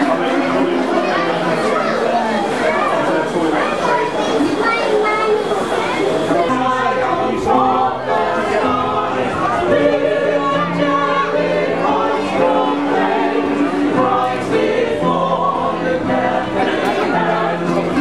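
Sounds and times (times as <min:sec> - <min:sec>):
choir singing a carol: 0:05.3 - 0:18.0
acoustic guitar: 0:10.6 - 0:18.0.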